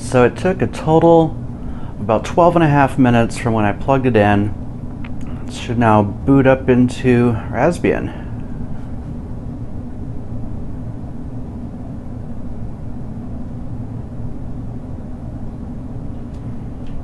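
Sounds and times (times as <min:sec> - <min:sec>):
faint hum: 0:00.0 - 0:17.0
low rumbling room noise: 0:00.0 - 0:17.0.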